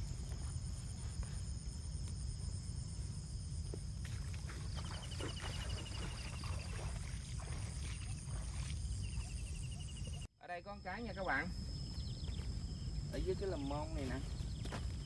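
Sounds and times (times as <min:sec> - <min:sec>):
wind rumbling on microphone: 0:00.0 - 0:10.2
rapid pulsing insect trill: 0:00.0 - 0:15.0.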